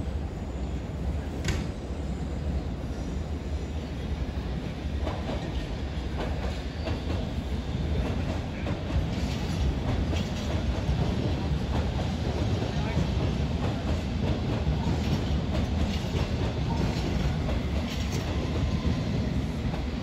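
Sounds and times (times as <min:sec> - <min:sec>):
train rumbling past: 0:00.0 - 0:20.0
train wheels clacking over rail joints: 0:05.0 - 0:20.0.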